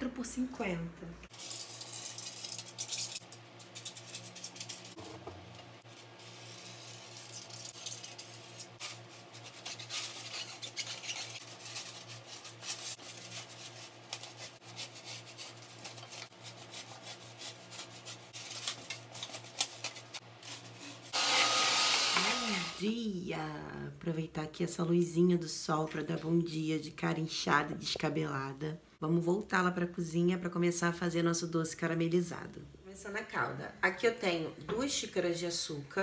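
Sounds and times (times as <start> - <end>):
pen and knife scratching styrofoam: 8.2 - 18.4.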